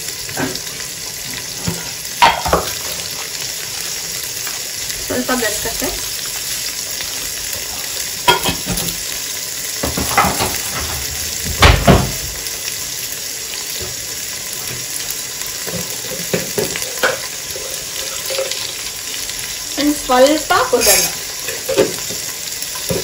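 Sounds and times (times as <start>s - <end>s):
oil sizzling: 0.0s - 23.0s
kitchen knocks and clatters: 0.3s - 0.8s, 1.4s - 3.1s, 8.2s - 9.1s, 9.8s - 12.4s, 15.6s - 18.7s, 20.8s - 23.0s.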